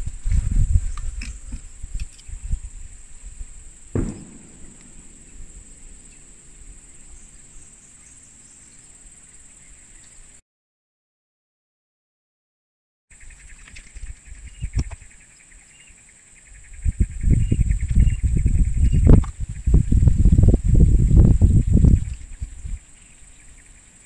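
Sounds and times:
insects droning: 0:00.0 - 0:10.4, 0:13.2 - 0:24.0
sharp knock: 0:04.0 - 0:08.9
thumps: 0:04.0 - 0:09.3
low rumble: 0:04.0 - 0:09.7.

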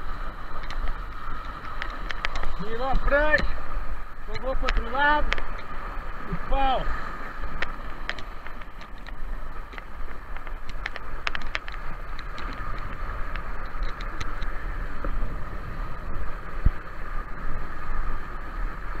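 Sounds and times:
water rushing and splashing: 0:00.0 - 0:19.0
wind buffeting microphone: 0:00.0 - 0:19.0
sharp ticks: 0:07.5 - 0:14.5.

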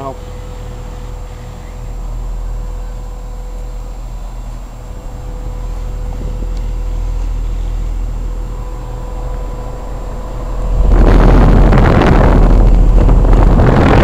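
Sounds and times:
faint steady whine: 0:00.0 - 0:14.0
fan air blowing on microphone: 0:00.0 - 0:14.0
heat pump compressor and fan hum: 0:00.0 - 0:14.0.

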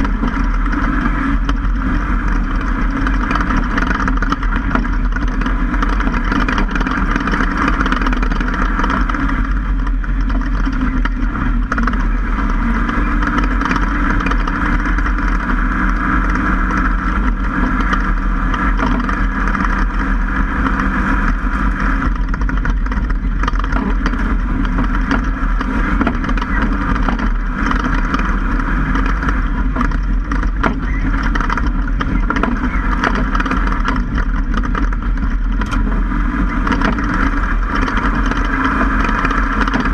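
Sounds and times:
truck engine: 0:00.0 - 0:39.9
wind noise: 0:00.0 - 0:39.9.

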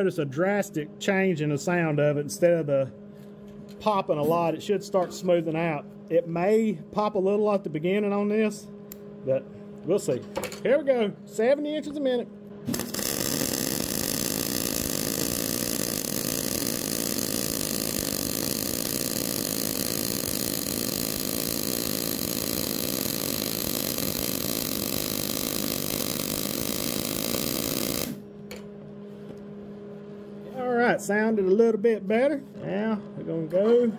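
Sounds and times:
welding arc sputtering: 0:12.7 - 0:28.2.

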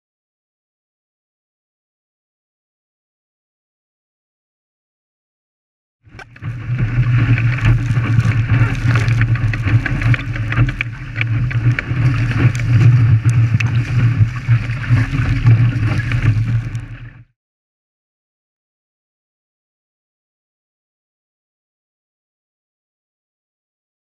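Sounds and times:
wind buffeting microphone: 0:06.1 - 0:17.0
water rushing along hull: 0:06.1 - 0:17.3.

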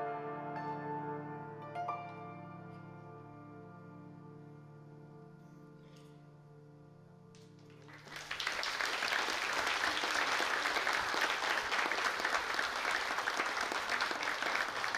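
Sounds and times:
audience applauding: 0:07.7 - 0:14.9.

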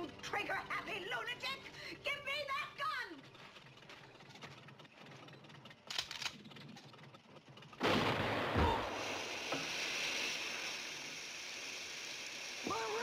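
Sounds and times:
water and steam hissing: 0:07.8 - 0:13.0.

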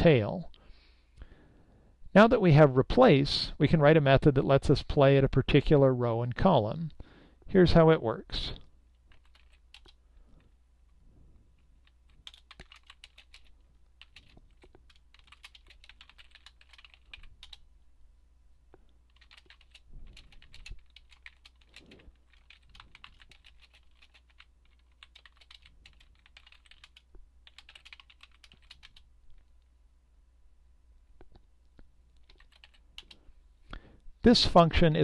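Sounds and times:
keyboard typing clicks: 0:11.8 - 0:17.6, 0:19.1 - 0:29.0, 0:32.2 - 0:33.2.

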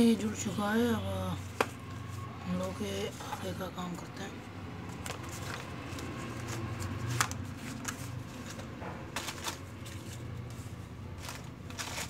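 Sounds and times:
cardboard rustling: 0:04.8 - 0:12.0.

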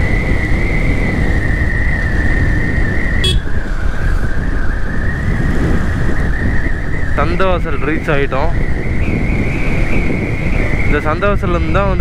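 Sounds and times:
rushing air: 0:00.0 - 0:07.6
motorcycle engine running: 0:02.0 - 0:04.1.

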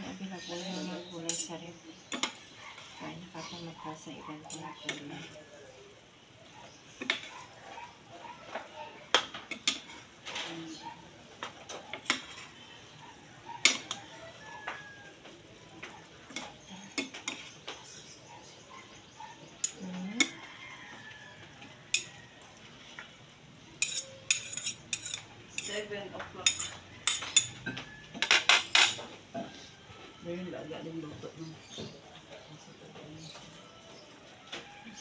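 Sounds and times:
metal spatula scraping a pan: 0:11.9 - 0:12.9, 0:23.8 - 0:27.5.

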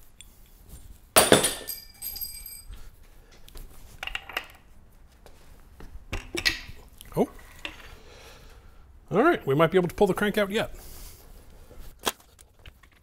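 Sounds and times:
light metal-on-metal clinks: 0:00.7 - 0:02.9
metal part clinking on metal: 0:01.2 - 0:02.7.

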